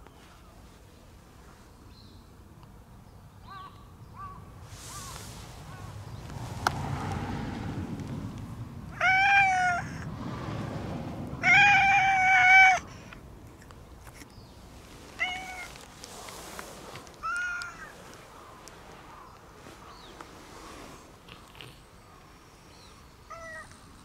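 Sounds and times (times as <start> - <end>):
cat meowing: 8.9 - 10.0, 11.4 - 12.9, 15.2 - 15.8.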